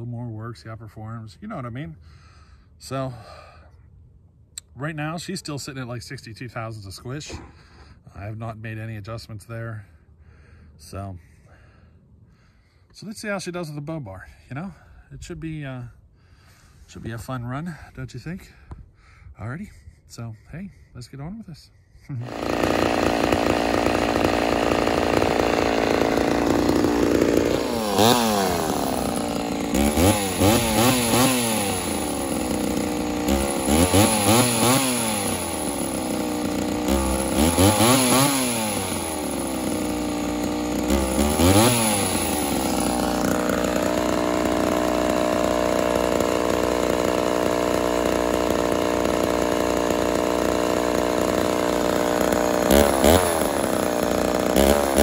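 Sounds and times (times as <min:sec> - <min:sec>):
chainsaw idling and revving: 0:22.2 - 0:55.0.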